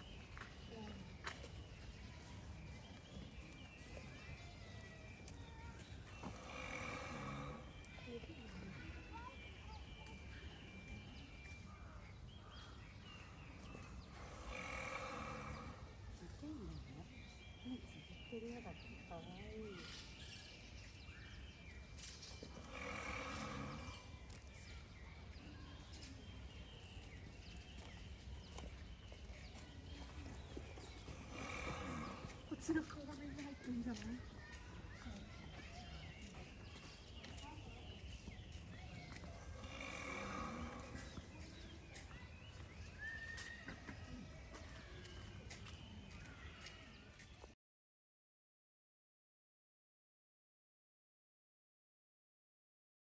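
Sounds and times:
rhinoceros breathy exhale: 22.5 - 24.0, 31.1 - 32.4, 39.5 - 40.9.

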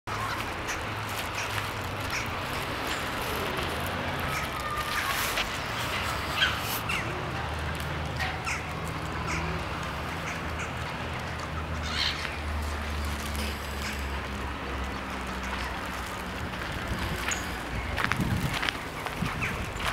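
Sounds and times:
gulls and ducks calling: 0.1 - 7.4, 8.2 - 16.2, 17.2 - 19.9.

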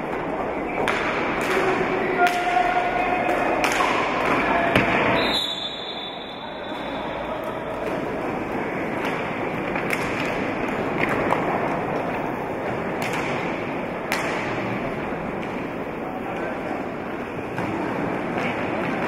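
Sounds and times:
crowd and hall noise: 0.0 - 19.0
sticks and ball clacking: 0.1 - 5.1, 6.6 - 16.7.

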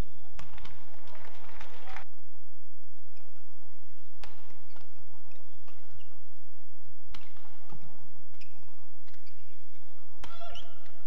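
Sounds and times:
racket smacking shuttlecock: 4.2 - 6.1, 7.1 - 9.6, 10.2 - 11.0
shoes squeaking on floor: 8.3 - 10.8.

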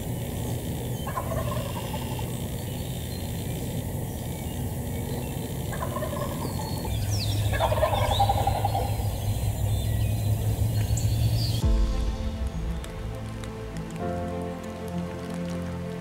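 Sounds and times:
turkey gobbling: 0.9 - 9.8.

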